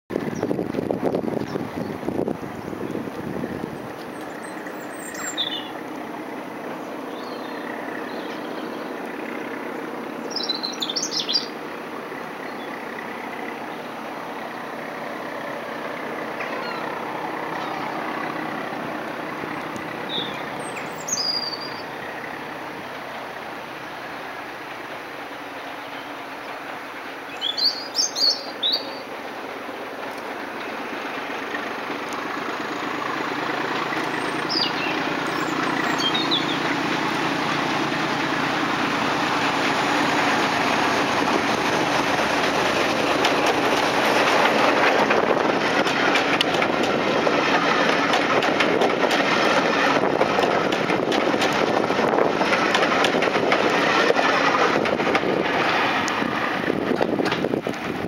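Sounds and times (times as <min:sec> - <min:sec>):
diesel locomotive engine running: 0:00.1 - 0:58.0
train wheels clattering on rails: 0:00.1 - 0:58.0
bird chirping: 0:03.8 - 0:05.8, 0:06.7 - 0:09.0, 0:10.2 - 0:11.6, 0:16.4 - 0:17.0, 0:20.0 - 0:22.1, 0:27.3 - 0:29.1, 0:34.1 - 0:36.7.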